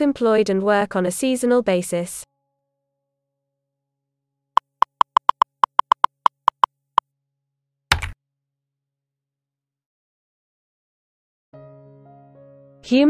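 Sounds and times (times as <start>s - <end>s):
keyboard typing clicks: 4.6s - 6.7s, 7.9s - 8.2s.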